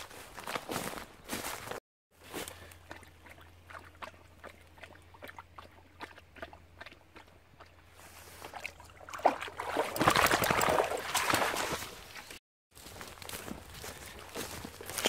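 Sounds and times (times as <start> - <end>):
dog paddling in water: 2.8 - 11.9
dog wading out of water: 8.5 - 11.8.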